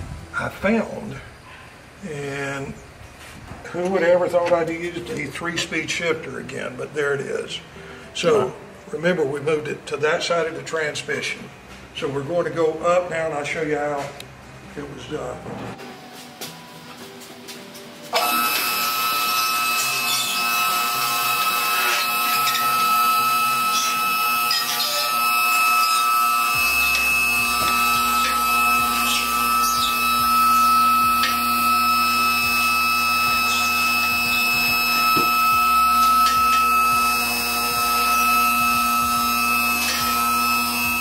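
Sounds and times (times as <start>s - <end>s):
vehicle lift motor whining: 18.1s - 41.0s.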